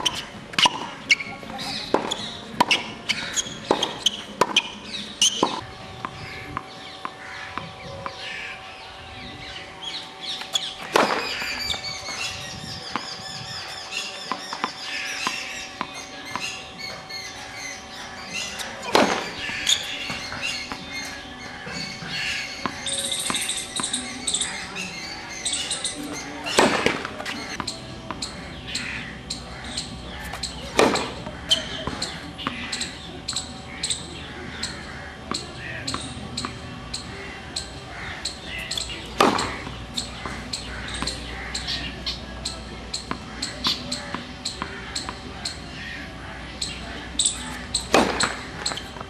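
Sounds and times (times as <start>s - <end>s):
tennis racket hitting ball: 0.0s - 1.2s, 1.9s - 5.6s, 18.4s - 20.8s, 29.7s - 32.7s, 38.6s - 41.2s, 47.2s - 49.0s
birds chirping: 0.0s - 49.0s.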